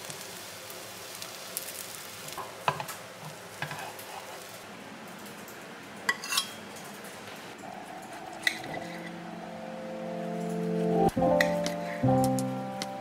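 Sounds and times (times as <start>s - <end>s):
omelet sizzling in a frying pan: 0.0s - 4.7s.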